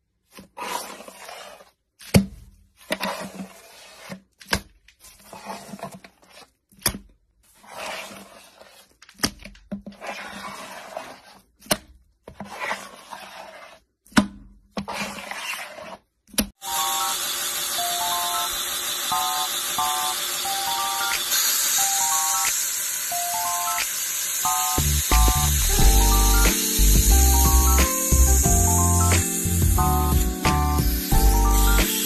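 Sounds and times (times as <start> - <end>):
scraper scraping through sprinkles: 0.4 - 2.0, 2.8 - 4.4, 5.0 - 6.7, 7.4 - 9.0, 9.9 - 11.6, 12.4 - 14.0.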